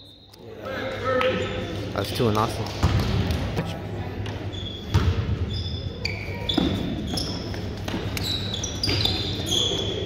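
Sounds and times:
shoe squeaks: 0.0s - 0.4s, 4.4s - 10.0s.

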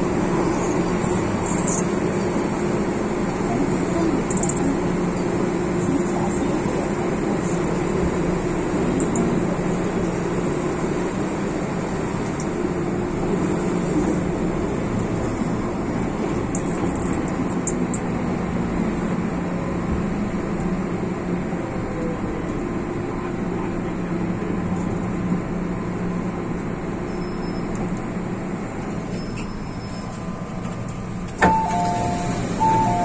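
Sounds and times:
train wheels and motors rumbling: 0.0s - 33.0s
click: 9.0s - 9.3s.

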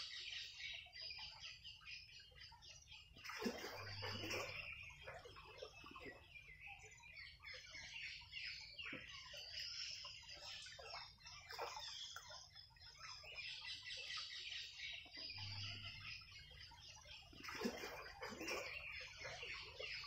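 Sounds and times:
birds chirping and clucking: 3.2s - 6.4s, 14.9s - 20.0s.

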